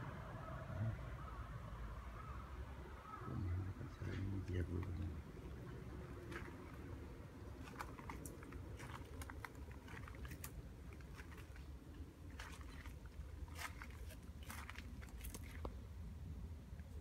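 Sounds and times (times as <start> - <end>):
low steady hum: 0.0 - 17.0
footsteps crunching on gravel: 7.6 - 11.7, 12.3 - 15.7.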